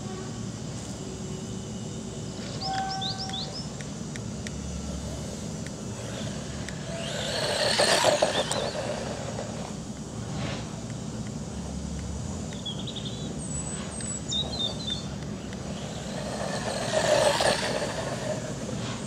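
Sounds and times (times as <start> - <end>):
low background hum: 0.0 - 19.0
electric rc buggy driving on dirt: 4.3 - 19.0
birds chirping: 6.9 - 9.5, 12.5 - 18.8.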